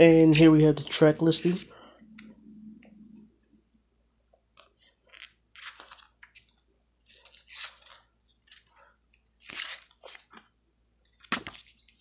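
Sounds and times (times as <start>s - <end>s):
booklet pages rustling: 4.6s - 12.0s.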